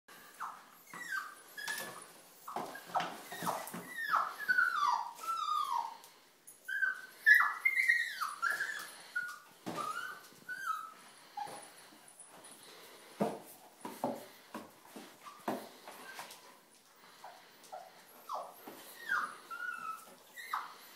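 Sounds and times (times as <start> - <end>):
puppy whimpering cries: 0.2 - 6.1, 6.7 - 11.8, 17.2 - 20.9.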